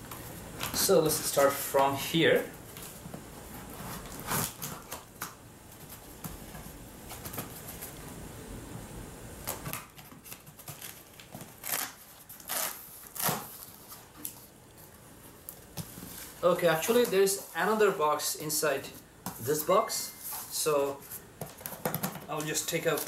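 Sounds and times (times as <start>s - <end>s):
cardboard rustling: 2.7s - 8.1s, 9.5s - 18.0s.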